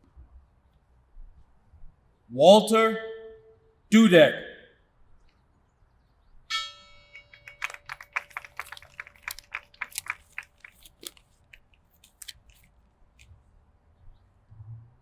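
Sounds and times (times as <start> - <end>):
bell strike with humming tone: 6.5 - 7.6.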